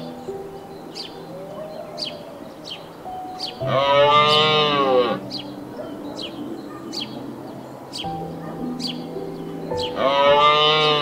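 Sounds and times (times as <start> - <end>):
soft sustained music tones: 0.0 - 11.0
moose lowing moo: 10.0 - 11.0.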